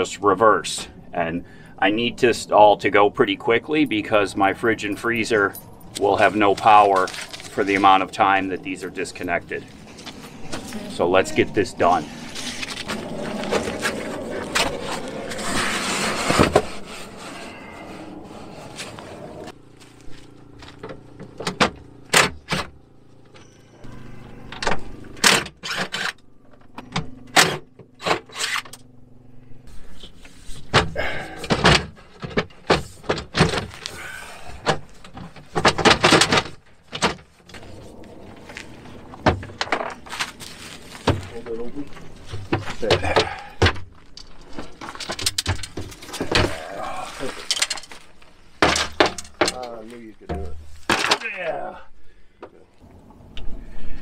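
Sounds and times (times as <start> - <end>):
hand tools clanking on metal: 41.1 - 51.4.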